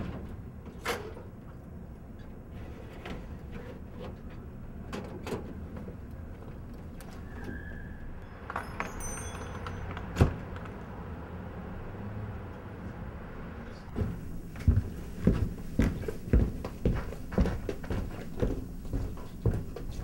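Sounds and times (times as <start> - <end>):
keys jingling: 8.4 - 10.2
low steady hum: 13.7 - 20.0.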